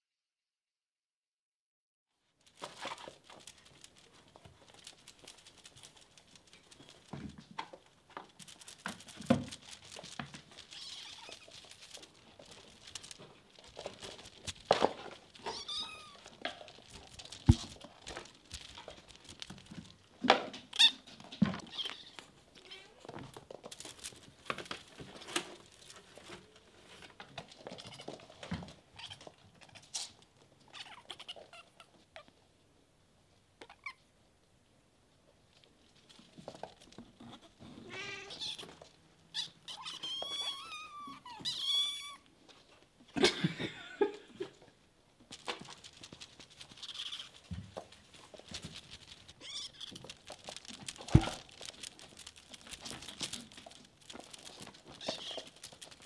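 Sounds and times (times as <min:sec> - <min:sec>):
kittens meowing and chirping: 0:10.7 - 0:12.0, 0:15.4 - 0:16.4, 0:37.4 - 0:38.7, 0:39.3 - 0:42.3, 0:46.6 - 0:47.5, 0:49.3 - 0:50.3, 0:54.8 - 0:56.0.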